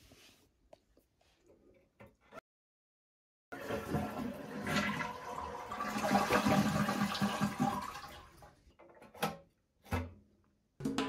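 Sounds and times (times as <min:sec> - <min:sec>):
toilet flushing: 0:03.5 - 0:08.6.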